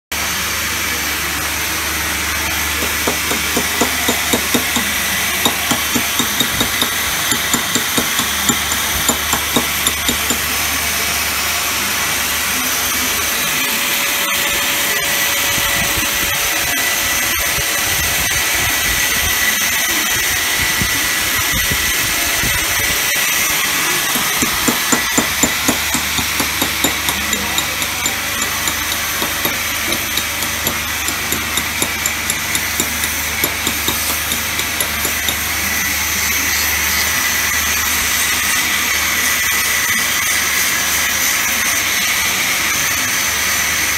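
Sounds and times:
workshop hiss and hum: 0.1s - 43.9s
hand tool tapping marble: 2.8s - 10.5s, 24.1s - 35.4s.

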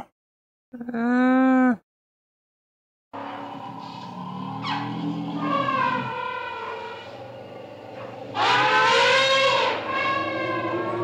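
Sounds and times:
elephant trumpeting: 3.2s - 11.0s.

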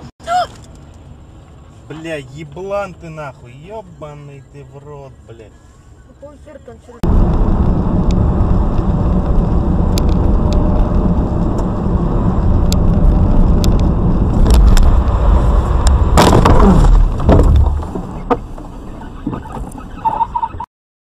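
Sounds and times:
car cabin rumble: 6.1s - 20.6s
car crash: 14.2s - 20.1s.

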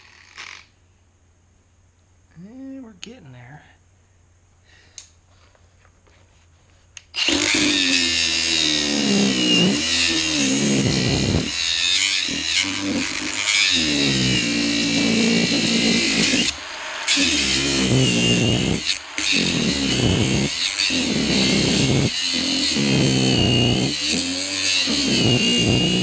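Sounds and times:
angle grinder cutting steel: 7.1s - 26.0s.

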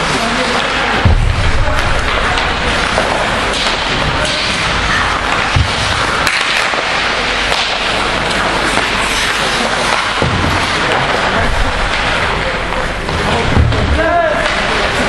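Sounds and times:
hockey sticks and puck clacking: 0.0s - 15.0s
thud: 1.0s - 4.6s, 5.3s - 6.9s, 10.0s - 12.2s, 13.5s - 14.6s.

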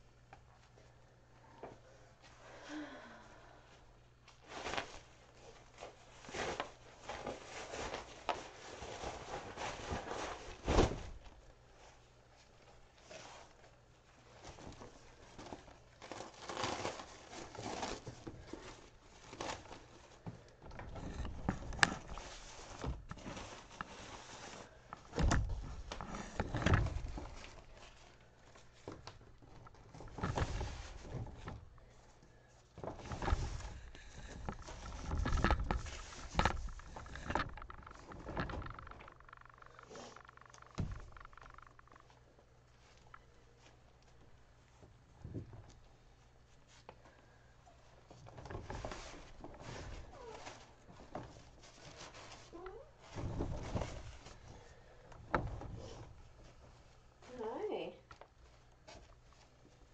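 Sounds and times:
plastic pads rustling and crinkling: 4.2s - 59.9s
dull thumps: 32.8s - 42.0s.

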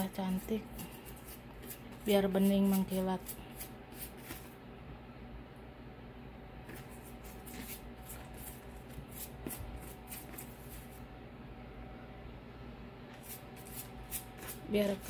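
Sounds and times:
pastry brush stroking bread crust: 0.0s - 4.6s, 6.6s - 11.1s, 13.1s - 15.0s.

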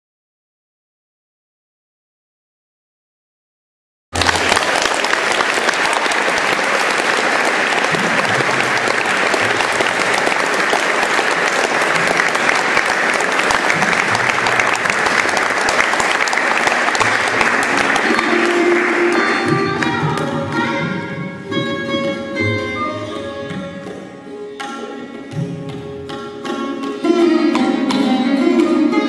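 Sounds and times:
audience applauding: 4.2s - 20.7s.

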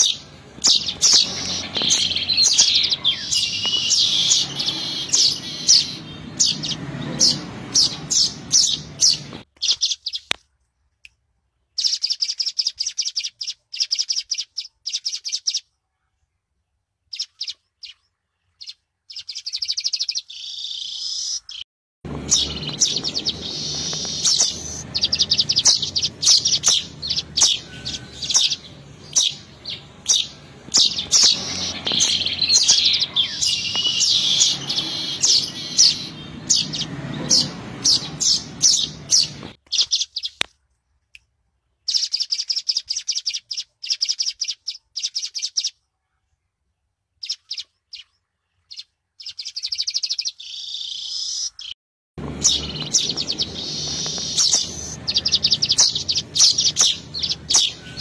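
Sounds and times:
bird chattering and chipping: 0.0s - 10.3s, 18.6s - 40.5s, 41.9s - 45.7s, 48.7s - 58.0s
low background hum: 22.1s - 39.5s, 52.2s - 58.0s.

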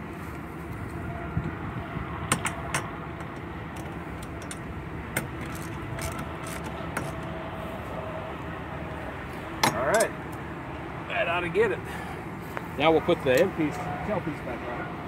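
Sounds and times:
wrenches clinking on a bolt: 2.4s - 7.2s.

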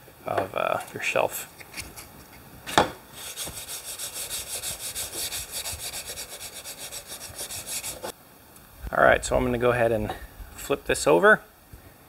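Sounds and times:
sanding sponge rubbing wood: 3.2s - 8.1s.

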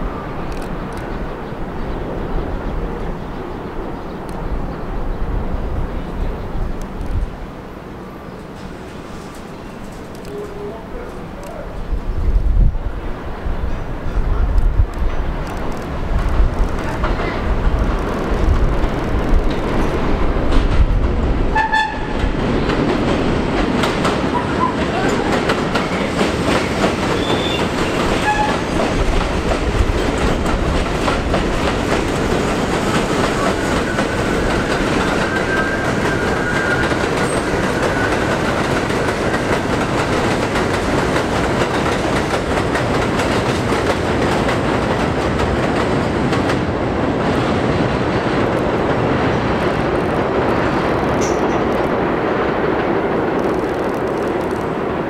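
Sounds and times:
train rumbling on steel track: 0.0s - 55.0s
wheels clacking over rail joints: 13.7s - 55.0s
high wheel squeals: 33.6s - 38.2s.

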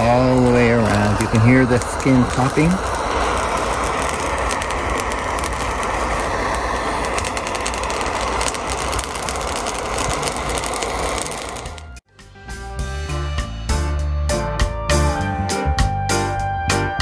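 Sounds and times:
gas torch flame hissing: 0.0s - 12.0s
pepper skins crackling and popping: 0.0s - 12.0s.

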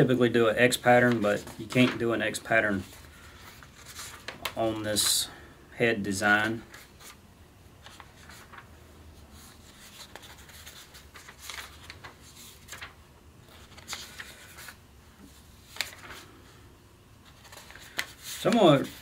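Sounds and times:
paper pages flipping: 0.8s - 5.1s, 6.6s - 7.2s, 7.8s - 8.7s, 9.4s - 16.3s, 17.2s - 19.0s.

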